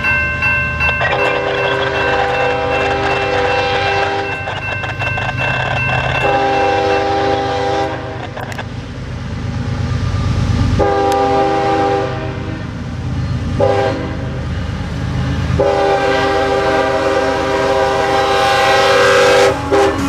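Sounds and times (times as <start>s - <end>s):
train rumbling: 0.0s - 20.0s
locomotive air horn blasts: 1.1s - 4.4s, 6.2s - 8.3s, 10.8s - 12.7s, 13.6s - 14.4s, 15.6s - 20.0s.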